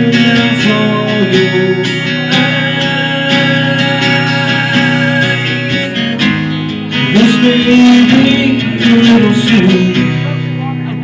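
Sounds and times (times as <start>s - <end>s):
person singing ballad: 0.0s - 10.6s
acoustic guitar strumming: 0.0s - 11.0s.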